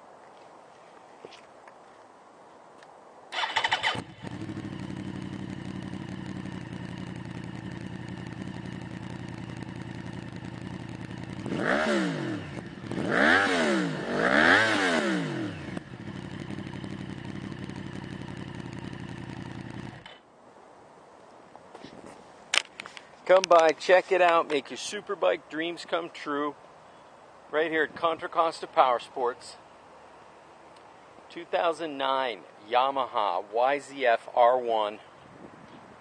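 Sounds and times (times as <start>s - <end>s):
motorcycle engine starting and idling: 3.3s - 20.2s
motorcycle engine revving: 3.4s - 20.2s.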